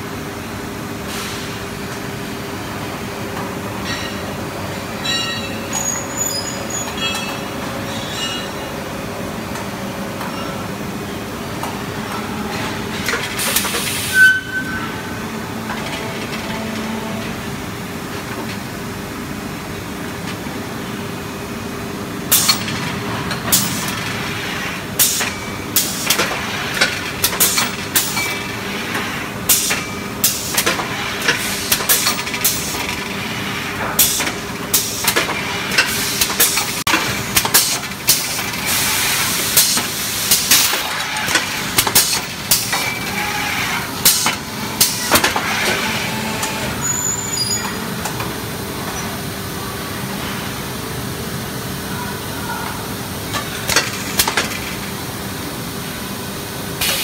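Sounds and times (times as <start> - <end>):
factory machinery humming: 0.0 - 57.0
sharp metallic clanks: 3.8 - 4.3, 5.0 - 5.9, 6.8 - 8.6.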